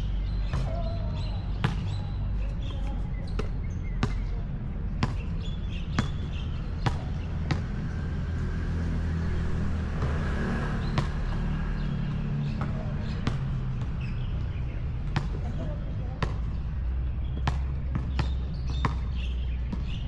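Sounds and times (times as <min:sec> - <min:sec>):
basketball bouncing on hard court: 0:02.6 - 0:07.8, 0:10.9 - 0:11.9, 0:12.5 - 0:14.4, 0:15.0 - 0:16.6, 0:17.3 - 0:20.0.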